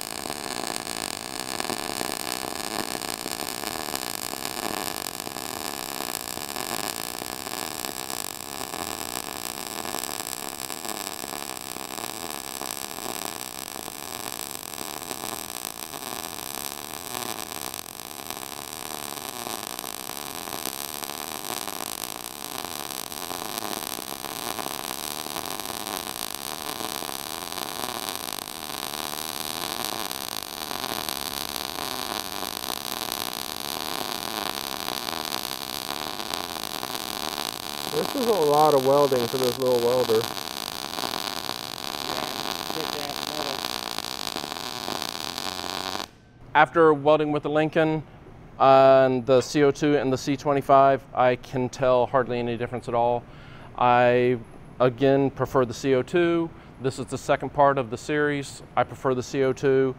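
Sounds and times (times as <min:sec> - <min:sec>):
welding arc hissing: 0:00.0 - 0:46.2.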